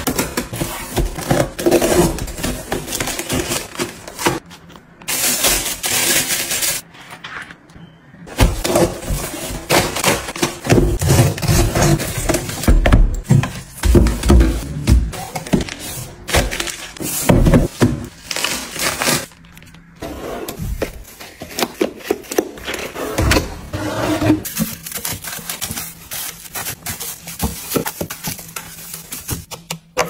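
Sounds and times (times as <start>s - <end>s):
plastic packs crinkling: 15.1s - 19.9s, 24.4s - 29.6s
items tapping and clacking: 24.4s - 30.0s.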